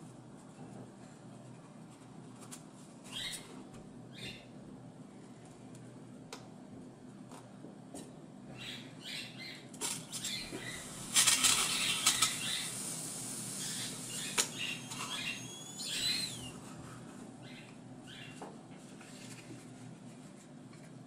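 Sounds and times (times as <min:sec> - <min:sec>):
thin high squeaks: 0:13.6 - 0:16.6.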